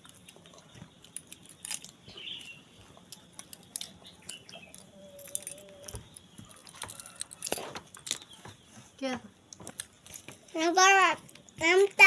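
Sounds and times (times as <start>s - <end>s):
monkeys gnawing and chewing: 0.0s - 8.8s, 9.5s - 12.0s
faint chirp: 2.0s - 2.8s, 3.8s - 7.5s.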